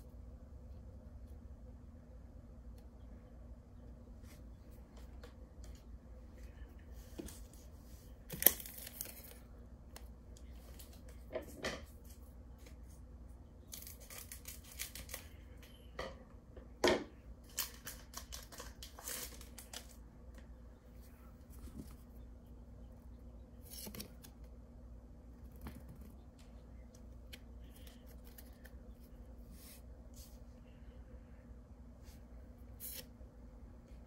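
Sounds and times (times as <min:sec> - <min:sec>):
foil wrapper crinkling and tearing: 0:08.3 - 0:09.5, 0:13.7 - 0:15.4, 0:17.4 - 0:20.0.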